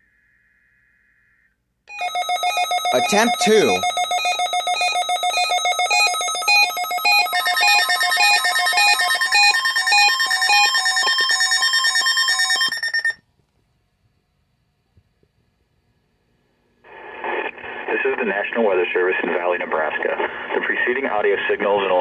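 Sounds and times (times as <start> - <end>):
weather radio alert alarms: 2.1 - 13.1.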